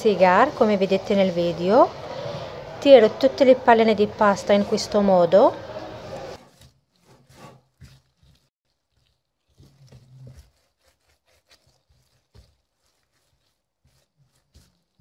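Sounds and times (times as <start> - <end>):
rustling plastic gloves: 6.3 - 15.0.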